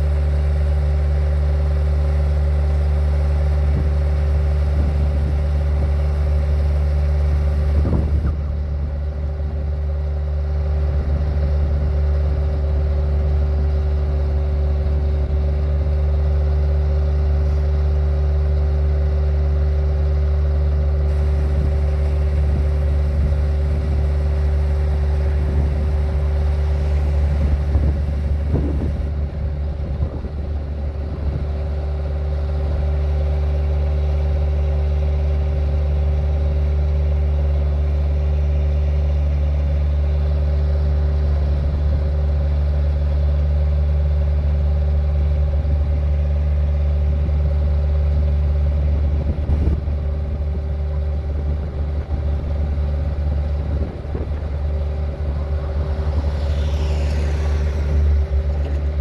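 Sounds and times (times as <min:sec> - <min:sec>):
loader engine running: 0:00.0 - 0:59.0
hydraulic auger drive turning: 0:53.3 - 0:59.0.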